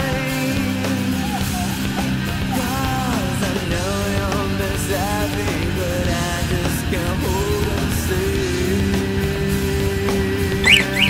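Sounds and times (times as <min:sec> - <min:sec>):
rock song with singing: 0:00.0 - 0:11.0.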